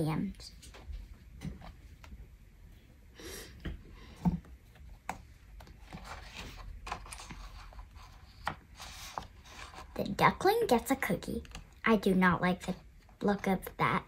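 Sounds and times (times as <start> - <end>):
book pages rustling: 4.3 - 10.4.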